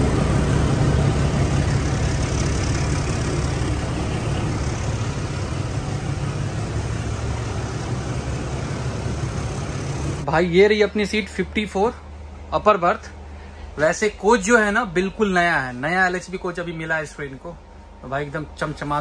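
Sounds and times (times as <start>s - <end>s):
train coaches rumbling past: 0.0s - 10.3s
train engine hum: 0.0s - 19.0s.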